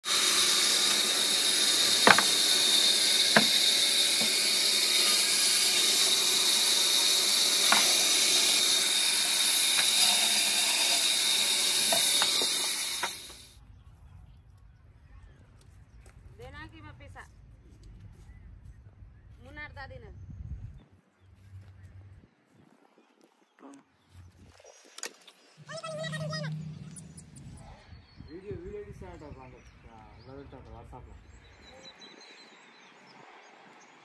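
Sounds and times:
band saw cutting log: 0.0s - 13.6s.

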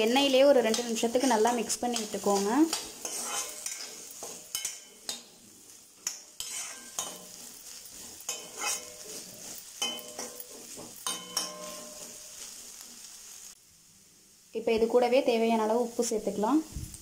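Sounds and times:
light sizzle of frying: 0.0s - 17.0s
metal ladle scraping a pan: 0.3s - 12.8s.

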